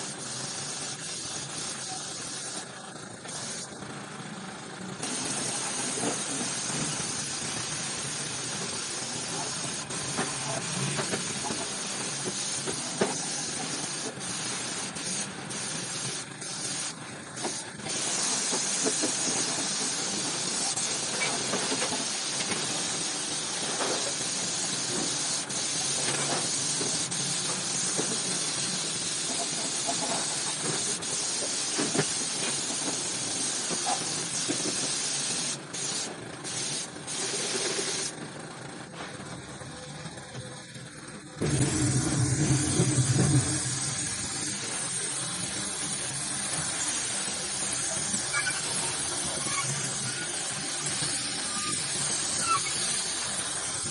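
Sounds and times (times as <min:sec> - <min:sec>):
paint spray gun hissing: 0:00.0 - 0:04.0, 0:04.8 - 0:38.2, 0:41.4 - 0:53.9.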